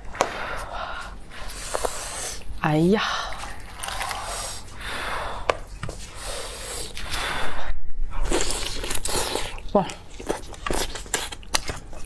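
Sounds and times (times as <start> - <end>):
breathing close to microphone: 3.9 - 8.3.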